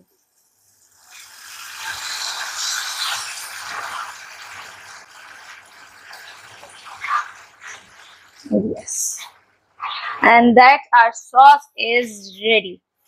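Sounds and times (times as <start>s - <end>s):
spatula scraping saucepan: 1.6s - 10.2s.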